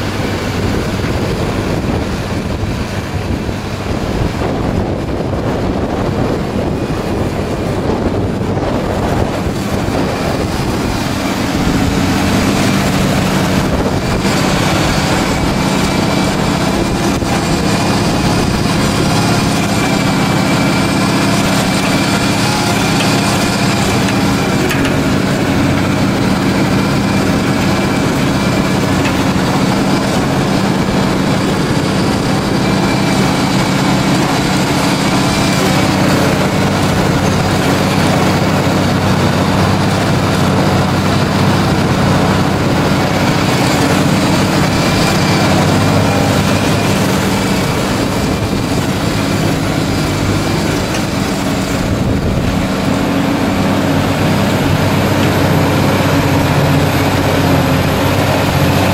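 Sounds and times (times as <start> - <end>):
harrow working soil: 0.0 - 58.9
tractor diesel engine: 0.0 - 58.9.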